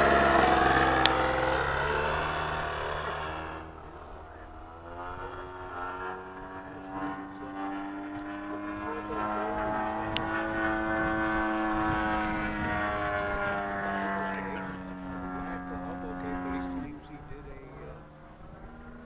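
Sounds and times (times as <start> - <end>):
model airplane engine and propeller: 0.0 - 19.0.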